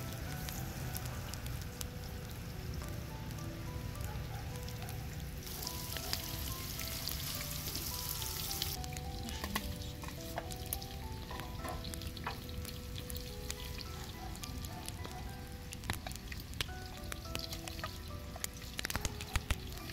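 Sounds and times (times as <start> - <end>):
frying in hot oil: 0.0 - 19.9
light background music: 0.0 - 19.9
oil pops and clicks: 15.7 - 19.9.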